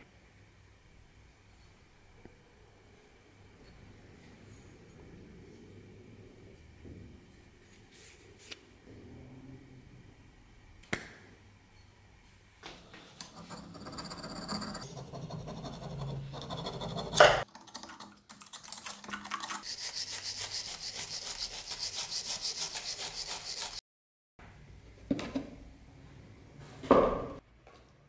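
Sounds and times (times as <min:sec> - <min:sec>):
metal scraping on anvil: 0:13.2 - 0:17.4
quick back-and-forth scraping: 0:19.5 - 0:23.8.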